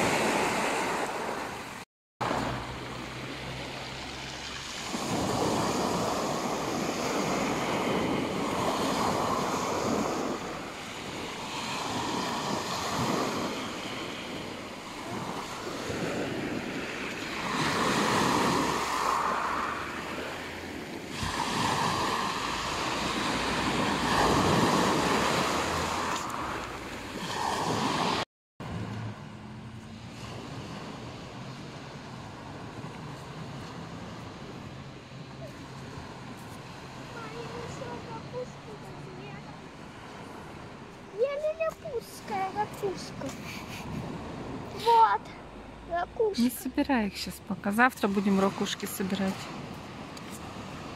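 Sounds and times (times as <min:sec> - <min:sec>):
waves washing over pebble beach: 0:03.3 - 0:28.2.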